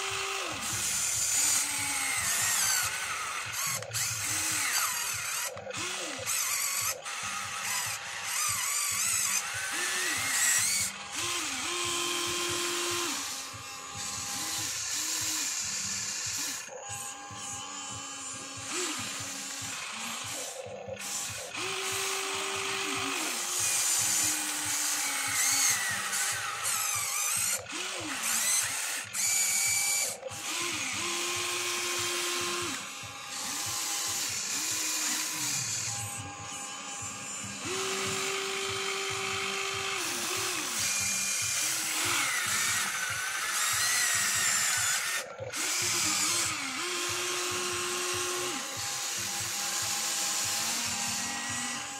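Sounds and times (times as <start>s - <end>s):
electric motors whining: 0.0s - 51.9s.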